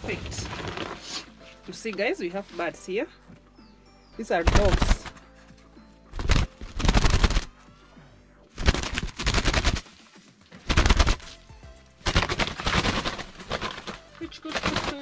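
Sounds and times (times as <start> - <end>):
doves flapping wings: 4.4 - 5.4, 6.1 - 7.6, 8.6 - 15.0.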